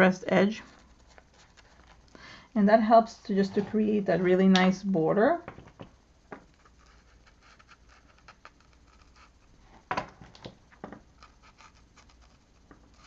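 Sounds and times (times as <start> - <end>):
paint marker scratching on paper: 6.6 - 9.4.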